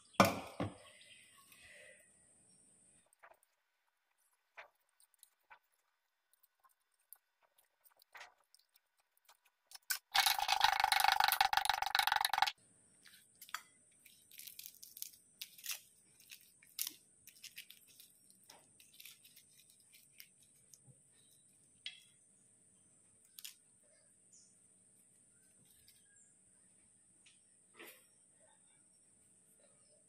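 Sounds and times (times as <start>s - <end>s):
papery skin crackling and tearing: 4.1s - 10.8s, 14.1s - 20.8s.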